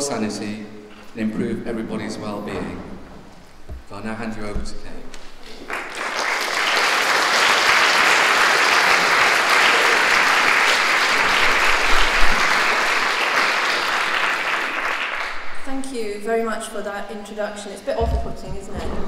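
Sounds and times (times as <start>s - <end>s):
audience applauding: 5.4s - 15.6s.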